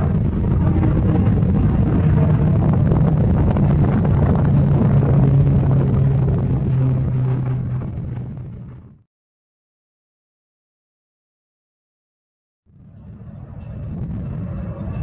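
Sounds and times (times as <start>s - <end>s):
turboprop aircraft passing overhead: 0.0s - 9.0s, 12.7s - 15.0s.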